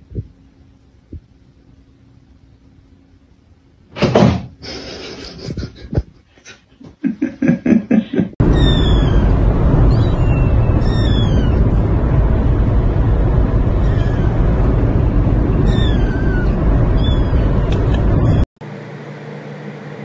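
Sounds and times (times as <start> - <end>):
kitten meowing: 8.5 - 9.3, 9.9 - 11.6, 13.8 - 14.4, 15.6 - 18.4.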